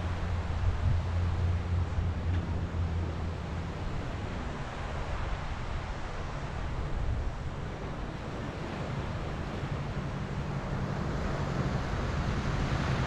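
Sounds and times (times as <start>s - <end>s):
surf washing onto beach: 0.0s - 13.0s
wind buffeting microphone: 0.0s - 13.0s.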